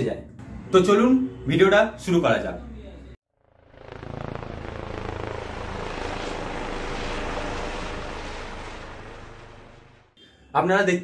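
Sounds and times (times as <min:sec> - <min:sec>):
whooshing rumble: 0:03.8 - 0:10.1.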